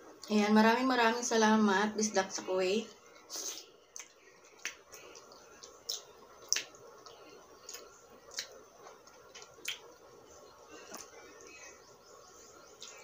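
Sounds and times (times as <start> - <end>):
person chewing wet fruit: 3.1 - 13.0.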